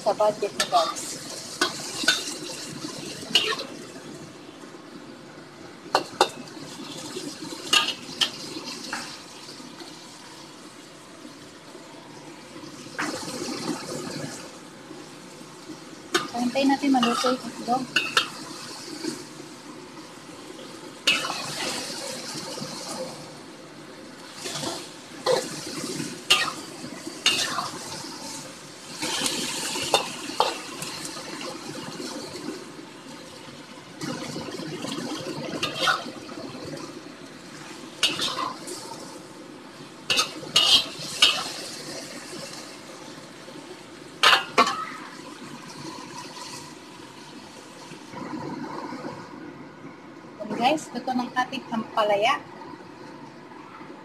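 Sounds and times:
stir-fry sizzling in a wok: 0:00.0 - 0:04.3, 0:05.8 - 0:48.2
metal spatula scraping wok: 0:16.2 - 0:18.4, 0:21.1 - 0:21.8, 0:26.2 - 0:27.9, 0:35.6 - 0:36.1, 0:38.0 - 0:38.9, 0:40.1 - 0:41.6
spatula scraping pan: 0:26.3 - 0:27.8, 0:38.0 - 0:38.8, 0:40.1 - 0:41.5.

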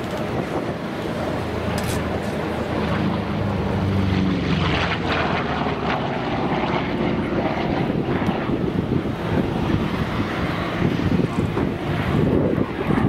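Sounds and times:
propeller aircraft engine roaring: 0:00.0 - 0:13.0.

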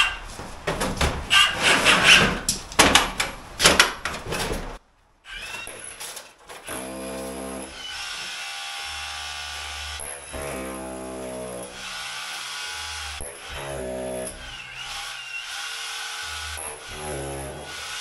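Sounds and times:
tools clattering and knocking: 0:00.0 - 0:04.8, 0:05.4 - 0:06.7.

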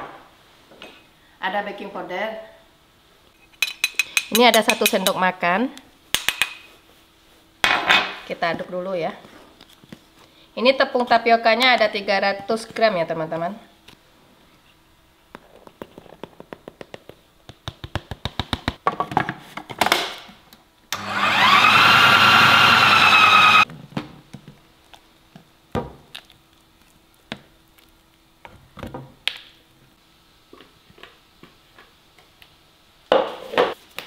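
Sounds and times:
food processor motor whining: 0:20.9 - 0:23.6.

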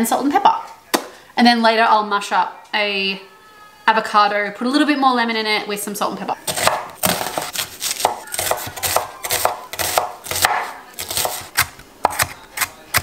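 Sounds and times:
knife chopping on wooden board: 0:06.5 - 0:13.0.

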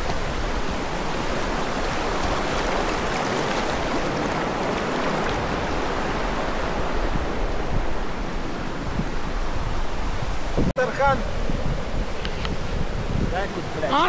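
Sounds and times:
river water rushing: 0:00.0 - 0:08.7.

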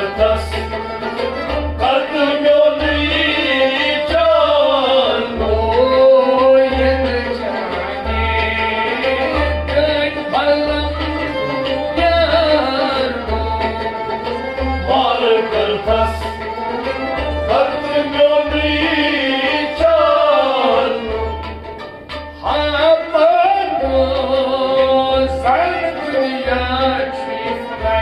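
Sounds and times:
man singing: 0:00.0 - 0:01.2, 0:01.8 - 0:21.5, 0:22.4 - 0:28.0
bowed sarangi: 0:00.0 - 0:28.0
harmonium: 0:00.0 - 0:28.0
low drum beat: 0:00.1 - 0:21.9.

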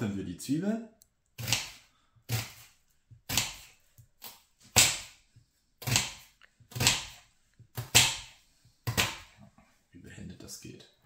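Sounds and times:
knife chopping on cutting board: 0:01.4 - 0:05.2, 0:05.8 - 0:09.3.

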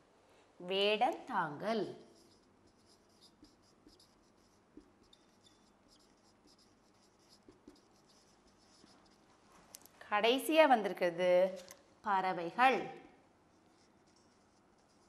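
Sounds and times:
marker scratching on whiteboard: 0:01.6 - 0:09.5, 0:13.5 - 0:15.0.

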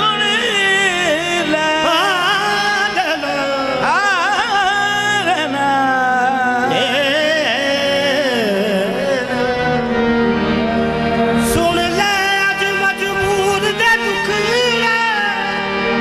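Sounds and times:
harmonium: 0:00.0 - 0:16.0
man singing long notes: 0:00.0 - 0:16.0.

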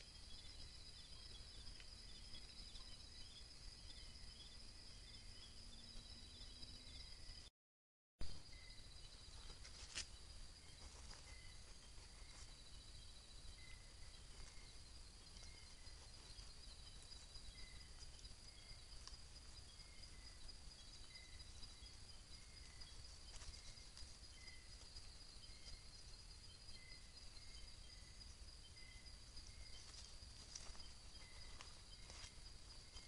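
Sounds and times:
short low insect chirp: 0:00.0 - 0:07.5, 0:08.2 - 0:33.0
fast ticking insect trill: 0:08.3 - 0:33.0
high insect buzz: 0:08.4 - 0:33.0.

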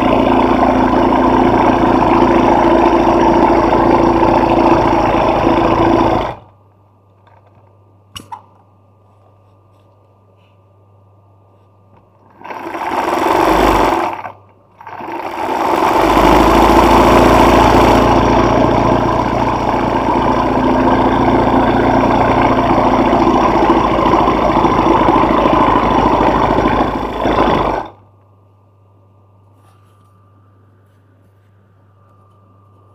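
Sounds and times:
sewing machine stitching: 0:12.2 - 0:28.0
faint low hum: 0:17.3 - 0:32.9.

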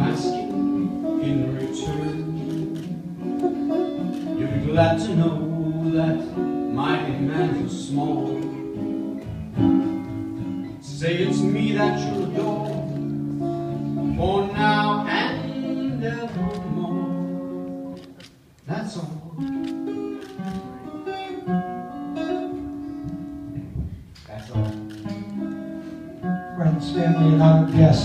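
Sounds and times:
man singing: 0:00.0 - 0:03.2, 0:04.4 - 0:08.7, 0:10.8 - 0:13.1, 0:14.0 - 0:17.4, 0:26.5 - 0:28.0
acoustic guitar strumming: 0:00.0 - 0:18.0, 0:18.6 - 0:23.9, 0:24.6 - 0:28.0.

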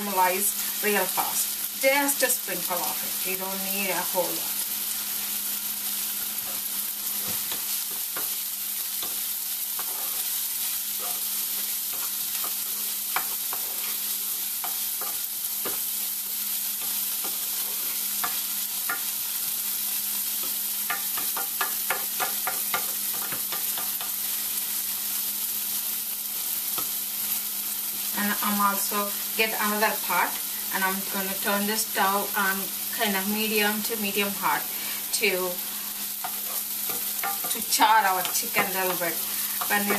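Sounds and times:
onions sizzling in oil: 0:00.0 - 0:39.9
wooden spoon scraping a pan: 0:06.1 - 0:19.1, 0:20.3 - 0:24.6, 0:34.4 - 0:39.9.

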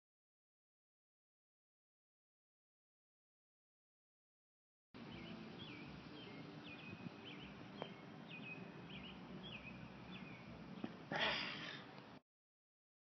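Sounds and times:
outdoor background noise: 0:05.0 - 0:12.2
small bird chirping: 0:05.1 - 0:10.9.

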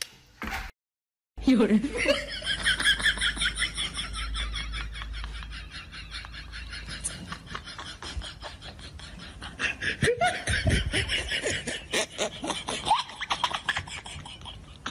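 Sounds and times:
person snickering: 0:05.0 - 0:14.9.

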